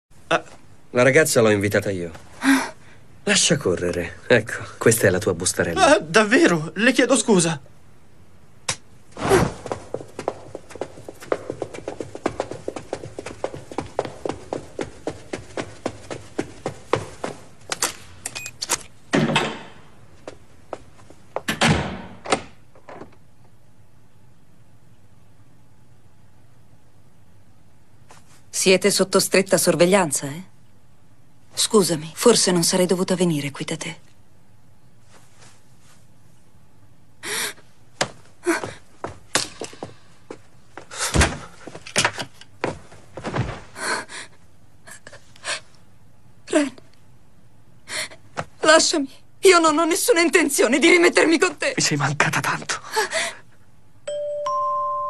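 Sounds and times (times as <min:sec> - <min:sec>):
footsteps on hard floor: 0:09.3 - 0:17.8, 0:38.0 - 0:43.9
person gasping: 0:37.2 - 0:37.6, 0:52.8 - 0:53.5.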